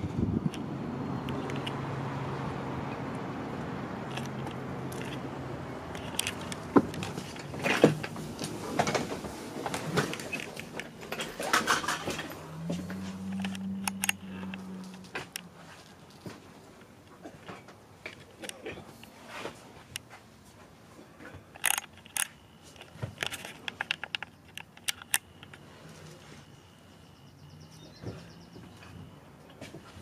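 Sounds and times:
footsteps inside a bus: 0:03.4 - 0:21.6, 0:25.5 - 0:30.0
sharp clicks and knocks: 0:04.0 - 0:15.5, 0:21.5 - 0:25.6.

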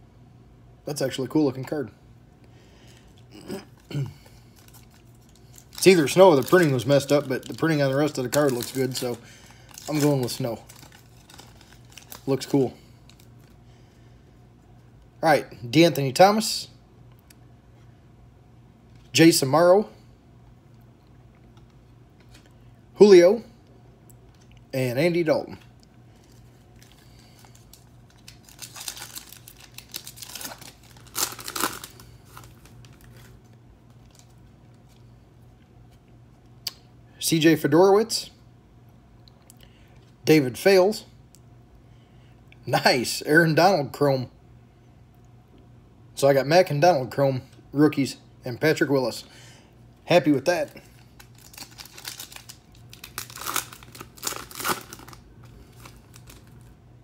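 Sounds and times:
foil wrapper tearing and crinkling: 0:03.7 - 0:13.5, 0:26.2 - 0:33.4, 0:50.6 - 0:56.8.

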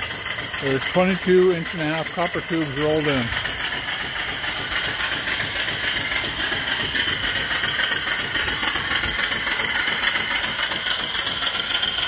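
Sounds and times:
steam engine running: 0:00.0 - 0:12.0
steam hissing from piping: 0:00.0 - 0:12.0.

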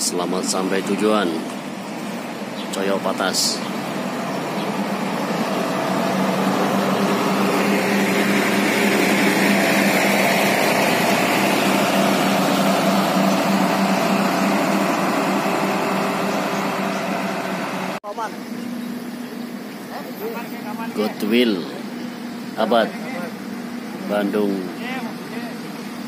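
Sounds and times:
bus diesel engine driving past: 0:00.0 - 0:26.0.

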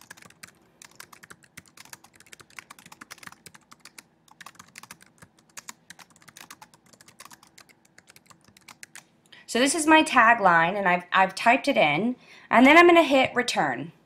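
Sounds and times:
computer keyboard typing: 0:00.0 - 0:09.1.

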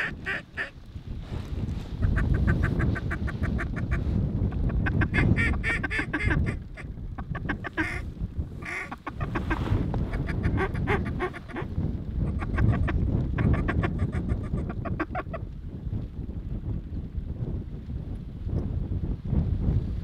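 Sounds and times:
duck quacking: 0:00.0 - 0:00.8, 0:02.0 - 0:04.0, 0:04.8 - 0:08.0, 0:08.6 - 0:11.7
wind rumble on microphone: 0:00.0 - 0:20.0.

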